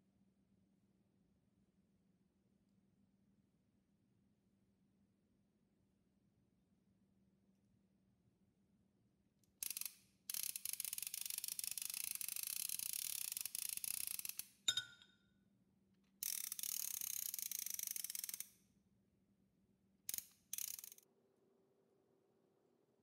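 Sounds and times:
toy fishing reel ratcheting clicks: 0:09.6 - 0:14.6, 0:16.2 - 0:18.5, 0:20.1 - 0:21.0.

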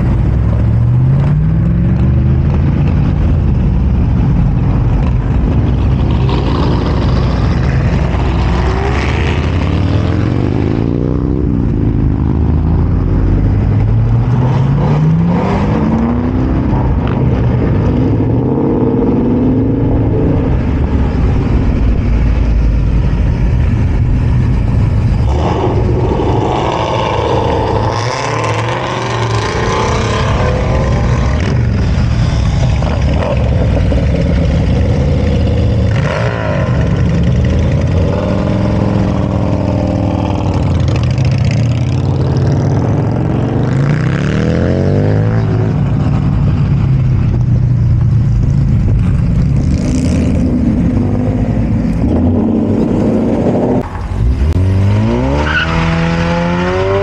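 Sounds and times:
motorcycles riding past: 0:24.2 - 0:55.0
cars accelerating past: 0:24.4 - 0:46.8, 0:48.9 - 0:57.0.

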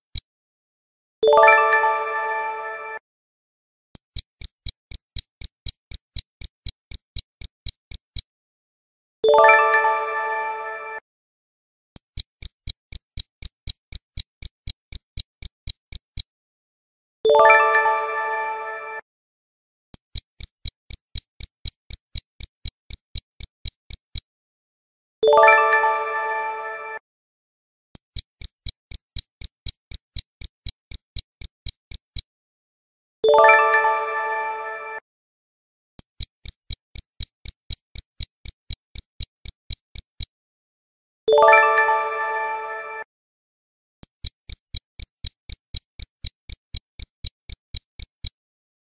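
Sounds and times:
stopwatch ticking: 0:00.0 - 0:00.3, 0:04.0 - 0:08.3, 0:12.0 - 0:16.3, 0:20.0 - 0:24.3, 0:28.0 - 0:32.3, 0:36.0 - 0:40.3, 0:44.0 - 0:48.4.

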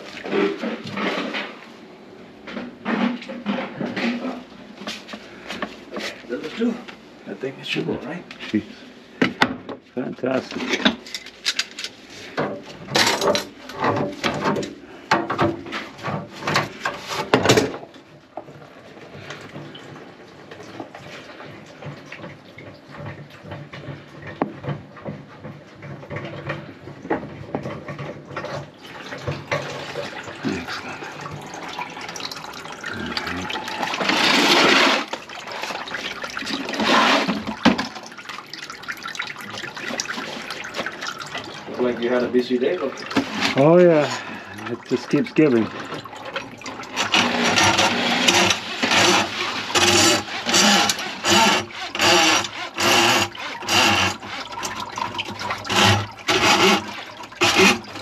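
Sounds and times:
knocks and clatter: 0:10.4 - 0:30.4
water pouring from sink drain: 0:25.4 - 0:58.0.

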